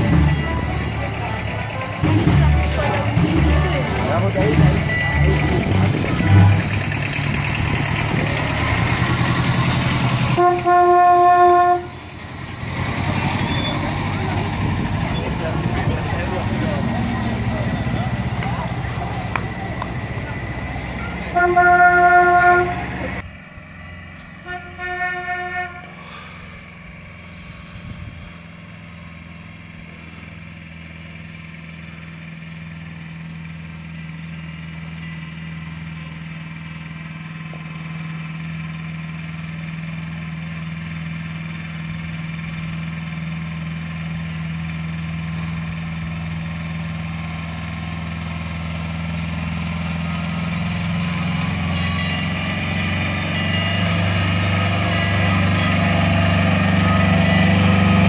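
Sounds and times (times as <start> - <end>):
vehicle engine hum: 0.0 - 58.0
vehicle horn tooting: 10.3 - 12.0, 21.3 - 23.0, 24.4 - 26.0.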